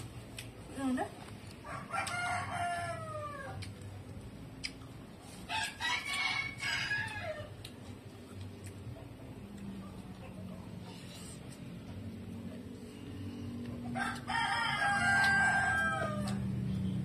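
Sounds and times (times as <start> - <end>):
rooster crowing: 1.6 - 3.6, 5.5 - 7.6, 13.8 - 16.7.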